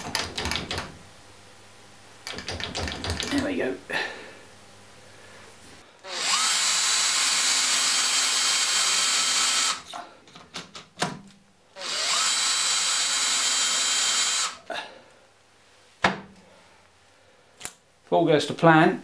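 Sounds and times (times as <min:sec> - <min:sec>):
sharp clicks and knocks: 0:00.0 - 0:01.0, 0:02.2 - 0:03.5
cordless drill whining: 0:06.0 - 0:09.9, 0:11.8 - 0:14.6.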